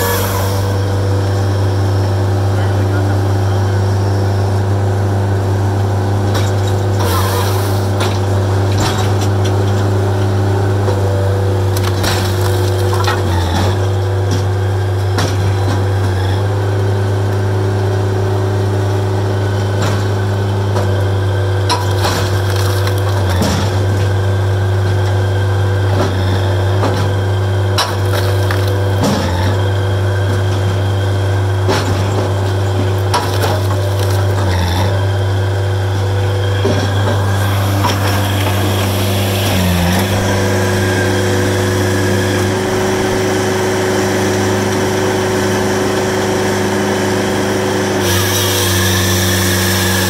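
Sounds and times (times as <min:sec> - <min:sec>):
firewood processor engine drone: 0:00.0 - 0:50.0
wood cracking and splintering: 0:06.4 - 0:14.5, 0:21.6 - 0:24.2, 0:26.8 - 0:29.8, 0:31.7 - 0:35.1, 0:36.6 - 0:42.7
split wood pieces knocking: 0:32.8 - 0:34.5.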